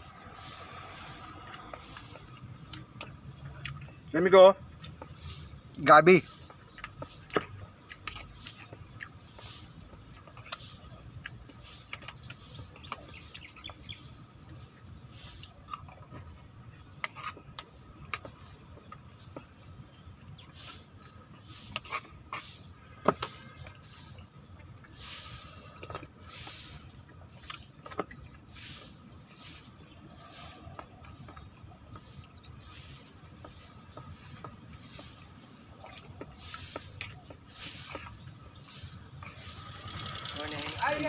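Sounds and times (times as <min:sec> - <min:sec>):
high insect buzz: 0:38.6 - 0:41.0.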